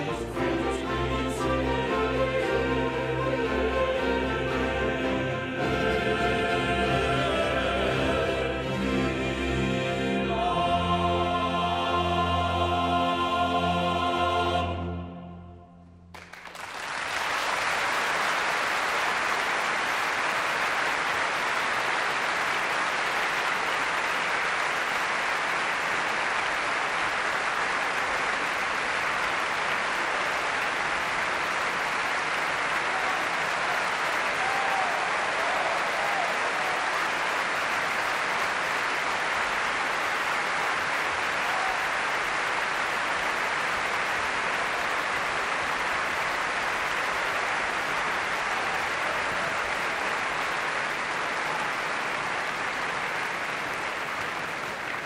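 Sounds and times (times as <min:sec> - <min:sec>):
audience applauding: 0:00.0 - 0:08.1, 0:16.1 - 0:55.0.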